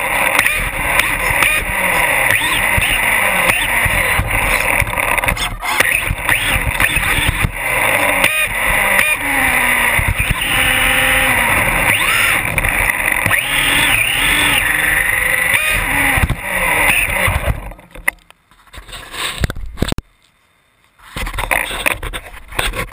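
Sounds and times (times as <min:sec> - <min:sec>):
electric motor whining: 0:00.0 - 0:17.8
tyre and road noise: 0:00.0 - 0:22.9.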